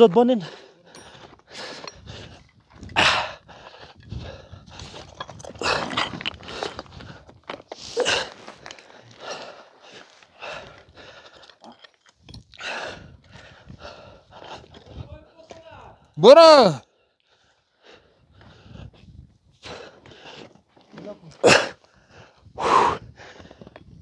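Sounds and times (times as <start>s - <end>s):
scuffs and rustles on rock: 4.0s - 12.3s.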